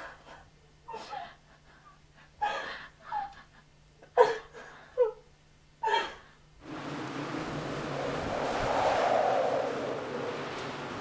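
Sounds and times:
woman sobbing: 0.9 - 6.4.

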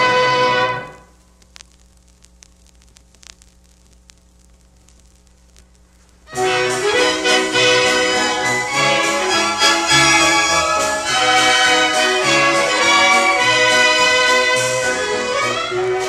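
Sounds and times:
vinyl surface noise: 0.0 - 16.0
orchestral film music: 6.4 - 16.0.

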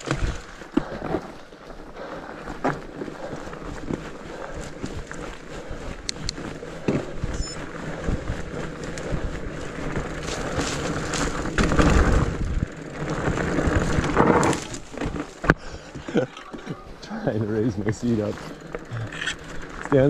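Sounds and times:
bike knocking and rattling: 0.0 - 20.0
bike tyres rumbling on rocks: 0.0 - 20.0.

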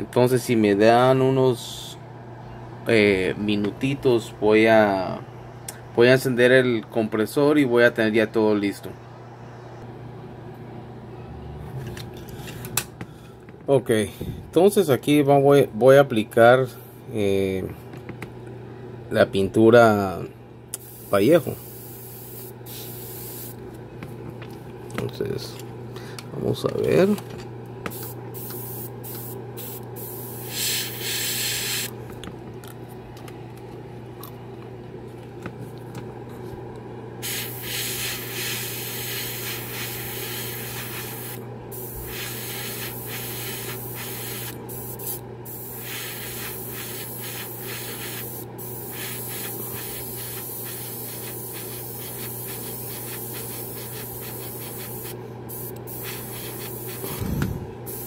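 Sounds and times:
air compressor hum: 20.7 - 58.0
airbrush spraying hiss: 20.8 - 23.6, 27.9 - 31.9, 37.2 - 57.2.

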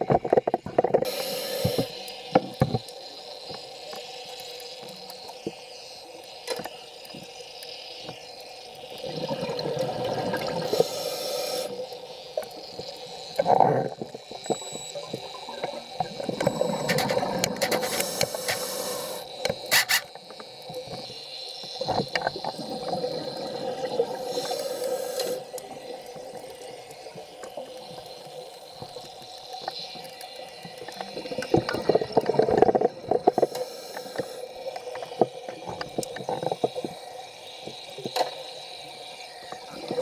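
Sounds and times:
diver exhaling bubbles: 9.0 - 11.0, 13.4 - 14.1, 22.3 - 25.6.

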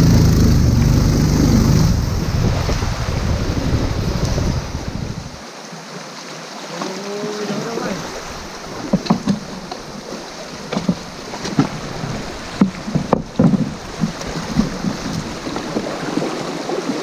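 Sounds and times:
river water rushing: 0.0 - 17.0
knocks on boat hull: 12.6 - 15.8.

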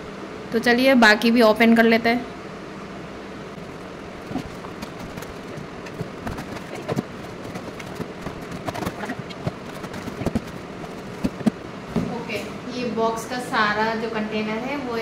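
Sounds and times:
steady background hiss: 0.0 - 15.0
cardboard rustling: 4.2 - 11.6.

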